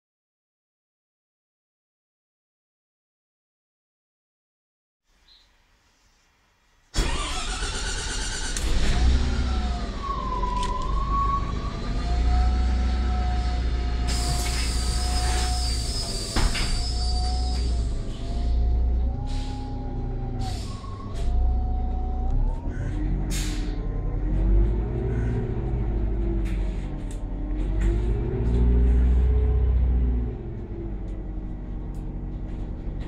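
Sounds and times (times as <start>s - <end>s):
bus engine rumble with whine: 7.0s - 33.0s.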